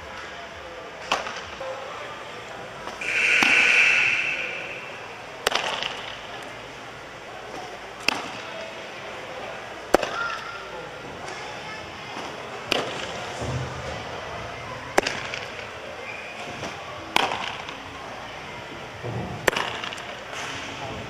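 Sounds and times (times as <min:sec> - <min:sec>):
loud hissing noise: 0:03.0 - 0:05.8.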